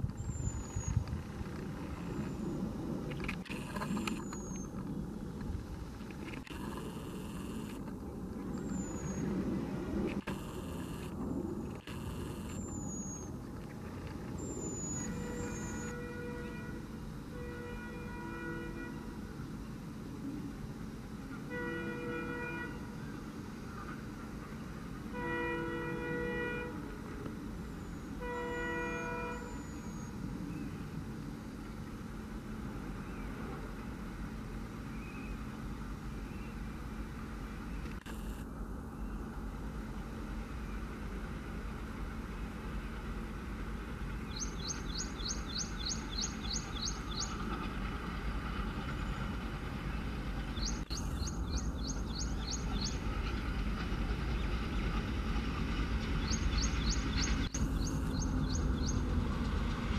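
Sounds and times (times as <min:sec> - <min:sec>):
train rumbling: 0:00.0 - 0:59.9
bird chirping: 0:00.2 - 0:01.0, 0:03.7 - 0:04.8, 0:08.5 - 0:09.4, 0:12.0 - 0:13.4, 0:14.4 - 0:16.0, 0:28.9 - 0:30.8, 0:44.3 - 0:47.4, 0:50.5 - 0:53.1, 0:56.2 - 0:59.1
locomotive horn blasts: 0:14.8 - 0:19.3, 0:21.3 - 0:23.0, 0:25.1 - 0:27.1, 0:28.1 - 0:30.1.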